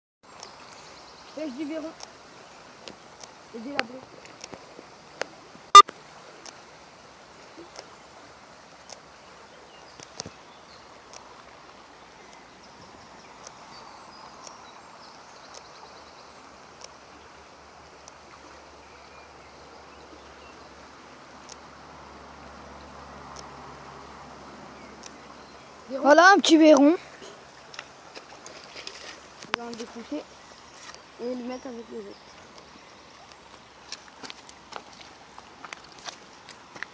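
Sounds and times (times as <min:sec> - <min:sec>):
stream water rushing: 0:00.3 - 0:36.9
faint clicks: 0:01.9 - 0:02.2, 0:02.8 - 0:04.6, 0:09.9 - 0:10.4, 0:11.0 - 0:11.3, 0:12.2 - 0:12.5, 0:13.4 - 0:14.7, 0:15.4 - 0:15.9, 0:16.8 - 0:17.0, 0:18.0 - 0:18.4, 0:21.4 - 0:21.7, 0:23.3 - 0:23.5, 0:25.0 - 0:25.3.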